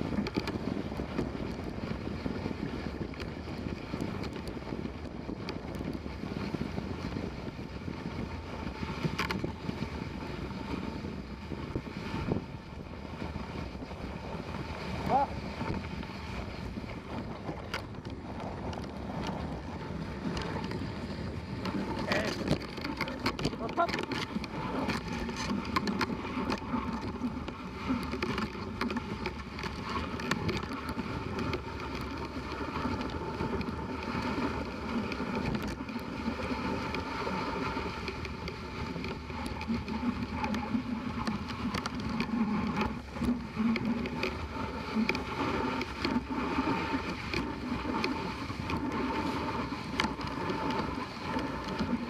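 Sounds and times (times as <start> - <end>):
sled runners hissing on snow: 6.0 - 17.4, 30.9 - 52.0
small clicks and knocks: 9.1 - 9.5, 17.5 - 19.4, 21.6 - 34.1.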